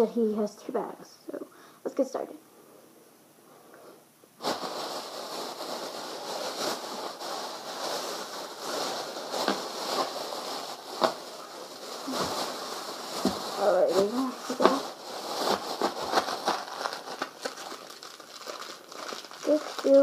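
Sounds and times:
plastic bag rustling and crinkling: 0:04.4 - 0:20.0.

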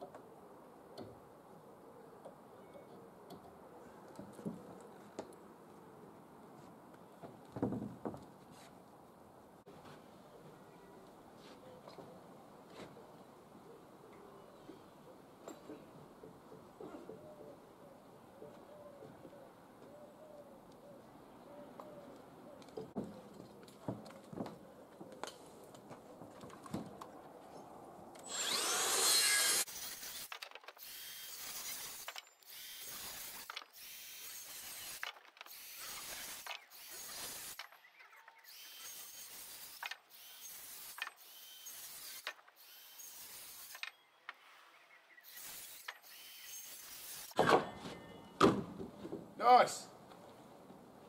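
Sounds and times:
handsaw cutting timber: 0:28.2 - 0:37.6, 0:38.4 - 0:43.8, 0:45.2 - 0:47.4.

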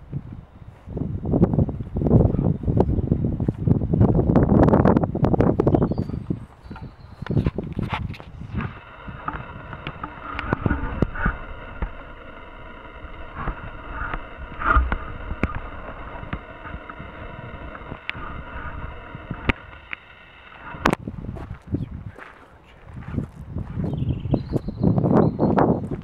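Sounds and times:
footsteps: 0:03.4 - 0:24.6
background hiss: 0:08.3 - 0:23.0.

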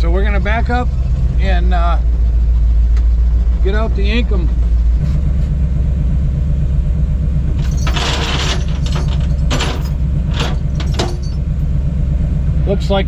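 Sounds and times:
truck engine idling: 0:00.0 - 0:13.0
metallic clanks and rattles: 0:07.5 - 0:11.8.

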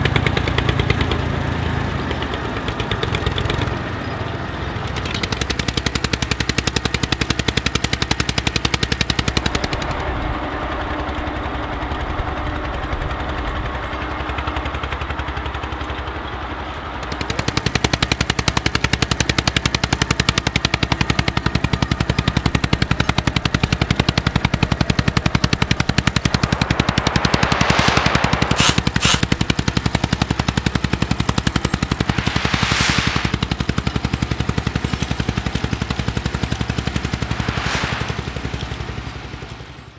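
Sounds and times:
diesel engine working under load: 0:00.0 - 0:39.9
short rushes of hiss: 0:25.5 - 0:29.7, 0:31.7 - 0:33.6, 0:36.9 - 0:39.5.

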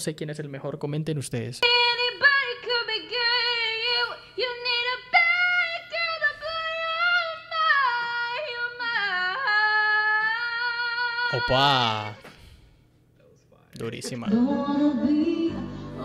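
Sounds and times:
woman singing: 0:01.6 - 0:11.6, 0:14.1 - 0:16.0.

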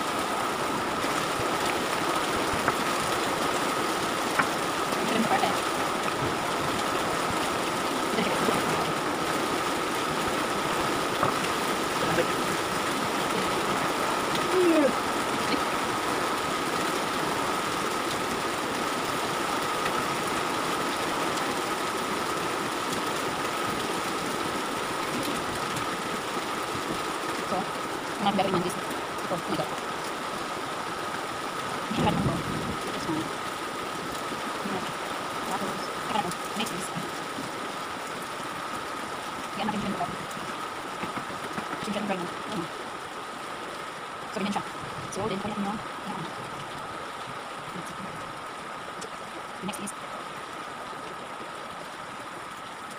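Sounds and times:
faint voice-like sounds: 0:14.4 - 0:15.8.

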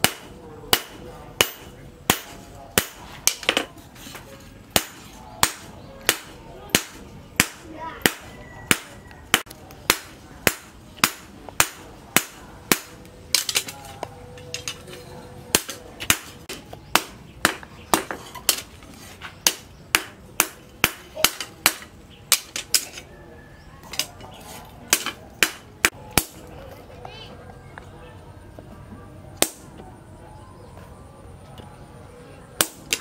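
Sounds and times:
hammer striking steel on anvil: 0:00.0 - 0:03.7, 0:04.7 - 0:13.7.

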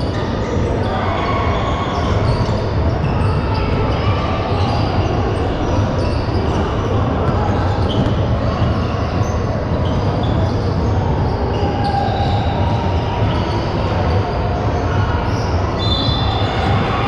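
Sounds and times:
loud gym din: 0:00.0 - 0:17.0
basketball bouncing on gym floor: 0:07.2 - 0:13.5.

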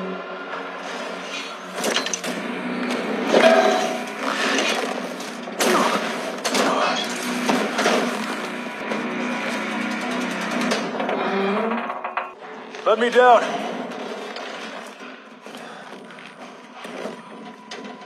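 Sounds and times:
low steady drone: 0:00.0 - 0:12.6
falling debris crashes: 0:01.7 - 0:11.2.

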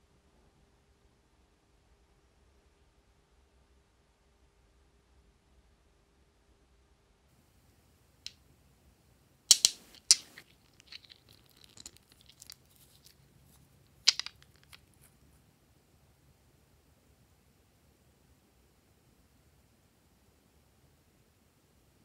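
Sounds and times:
cosmetic packaging clicks: 0:09.5 - 0:13.2, 0:14.1 - 0:14.9
soft scratchy handling: 0:09.5 - 0:15.5.

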